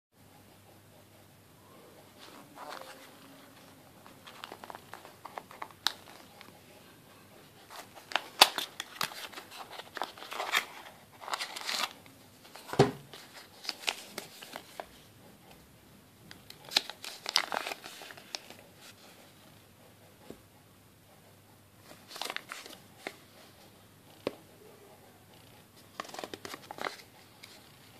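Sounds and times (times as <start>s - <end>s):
paper rustling and crinkling: 2.2s - 6.5s, 7.7s - 14.9s, 16.5s - 19.0s, 21.9s - 23.2s, 25.9s - 27.7s.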